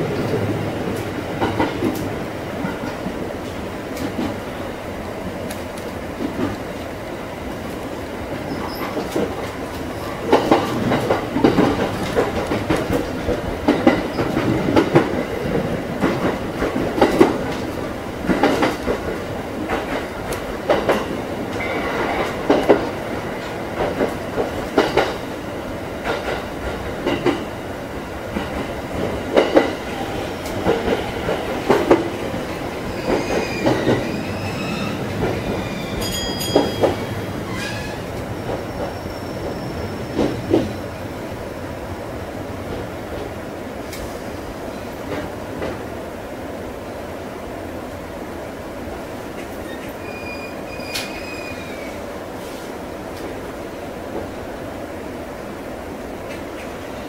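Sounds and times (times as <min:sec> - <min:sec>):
train rolling rumble: 0:00.0 - 0:57.0
wheels clacking over rail joints: 0:08.5 - 0:25.4, 0:28.3 - 0:40.9.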